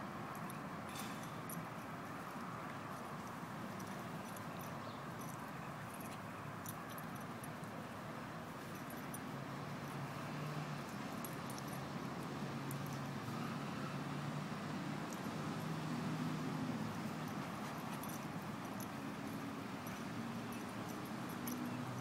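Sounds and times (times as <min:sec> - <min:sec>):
collar tags jingling: 0:00.3 - 0:22.0
dogs scuffling on grass: 0:14.8 - 0:22.0.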